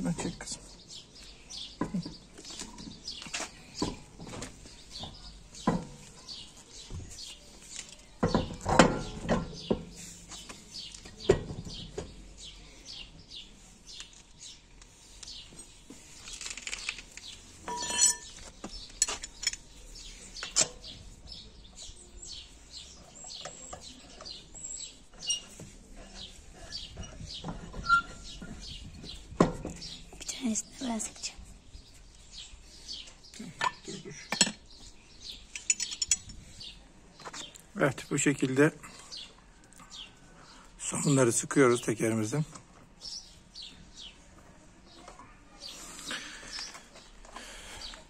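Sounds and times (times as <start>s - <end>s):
birds chirping: 0.0s - 48.0s
metal clink: 17.7s - 18.4s.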